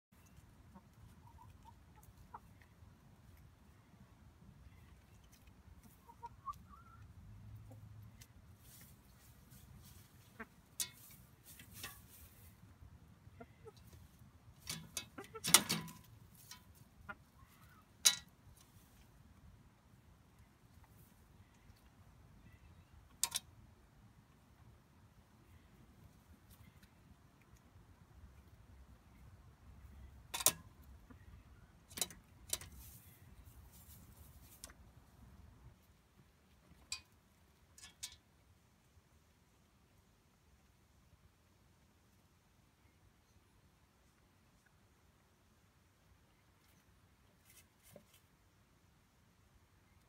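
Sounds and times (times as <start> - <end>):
hens pecking on metal feeder: 7.6 - 12.7, 13.4 - 19.2, 23.0 - 23.6, 29.8 - 34.9, 35.8 - 38.6
hens pecking metal trough: 13.6 - 17.3.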